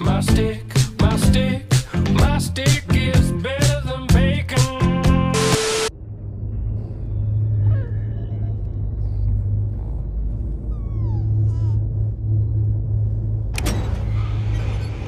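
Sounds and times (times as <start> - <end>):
spaceship engine rumble: 5.9 - 15.0.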